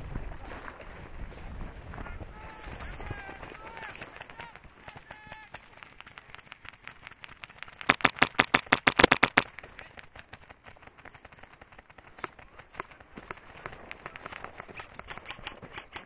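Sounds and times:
faint airsoft shots: 0:03.8 - 0:10.5
airsoft rifle rapid fire: 0:04.0 - 0:16.0.

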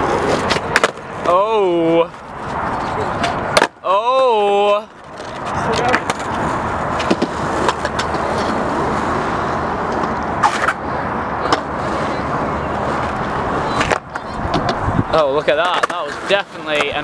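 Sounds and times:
skateboard clacks: 0:00.0 - 0:01.0, 0:02.4 - 0:03.8, 0:05.0 - 0:08.6, 0:15.4 - 0:17.0
skateboard wheels rolling on concrete: 0:00.0 - 0:17.0.

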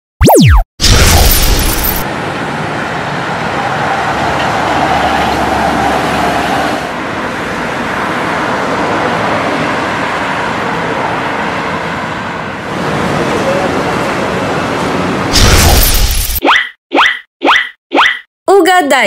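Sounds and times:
monorail train rumble and hiss: 0:02.1 - 0:15.3.

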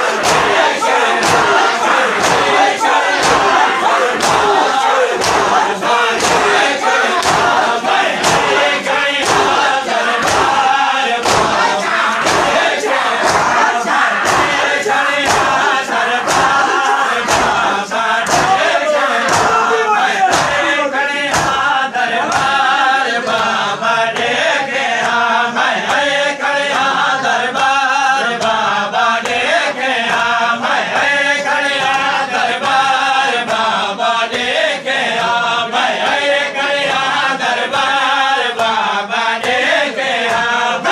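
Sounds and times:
hands beating on chests: 0:00.0 - 0:20.7, 0:21.3 - 0:21.6
men chanting in unison: 0:00.0 - 0:40.9.

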